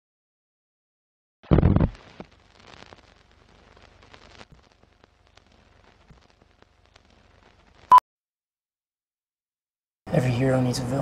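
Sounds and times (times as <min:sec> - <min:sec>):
old film crackle: 0:01.4 - 0:07.9.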